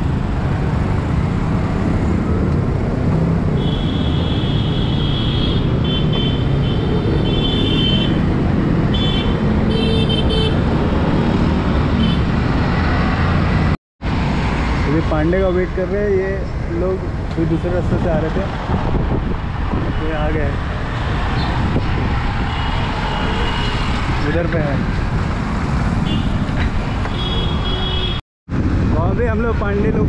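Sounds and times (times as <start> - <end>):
vehicle horn honks: 27.1 - 28.2.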